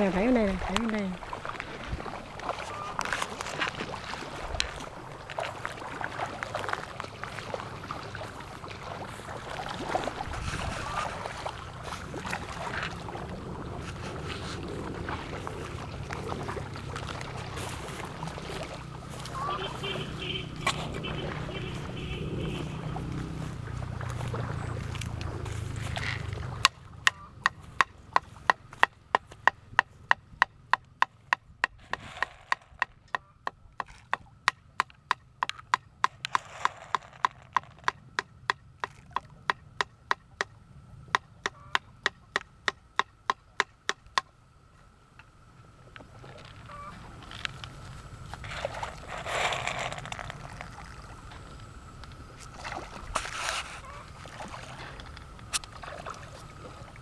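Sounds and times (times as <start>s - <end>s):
fish splashing at water surface: 0.0s - 27.0s, 31.8s - 33.0s, 36.1s - 37.9s, 48.4s - 57.0s.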